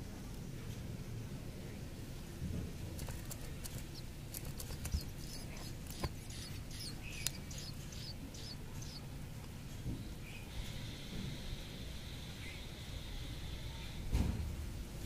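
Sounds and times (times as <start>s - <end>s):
sharp clicks: 3.0s - 8.1s
nestlings begging cheeps: 3.0s - 9.4s.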